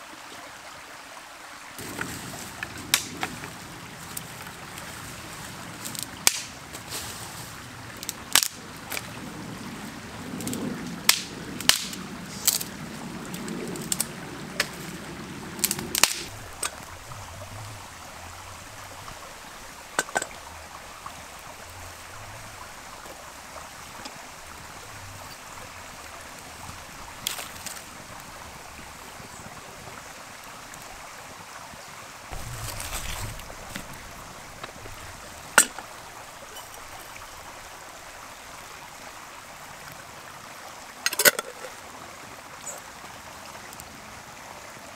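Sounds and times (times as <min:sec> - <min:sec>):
steady rushing hiss: 0:01.8 - 0:40.6
sharp cracks and knocks: 0:02.8 - 0:03.5, 0:05.9 - 0:06.6, 0:08.0 - 0:09.0, 0:10.4 - 0:12.7, 0:15.6 - 0:16.8, 0:32.3 - 0:36.0
rustling: 0:32.3 - 0:37.7.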